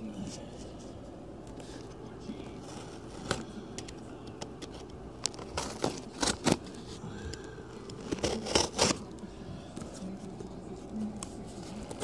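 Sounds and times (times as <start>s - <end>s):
package being torn open: 8.0s - 9.1s.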